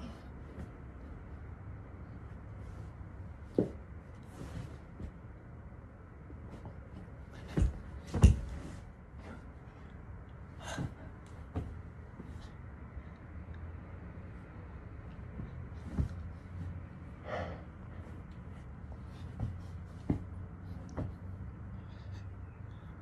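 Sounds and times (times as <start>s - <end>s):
low steady hum: 0.0s - 23.0s
thuds on a soft bed: 3.2s - 5.3s, 6.3s - 9.5s, 10.6s - 12.5s, 15.2s - 16.8s, 18.0s - 21.5s.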